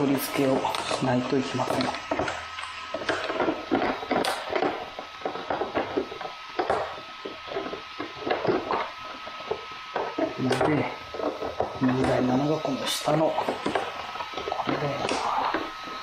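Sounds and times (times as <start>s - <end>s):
plastic parts clicking and rattling: 0.4s - 12.3s.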